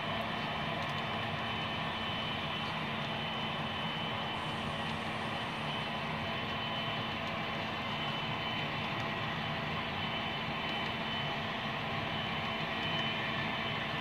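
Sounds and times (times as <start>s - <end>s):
model train rolling hum: 2.8s - 9.4s.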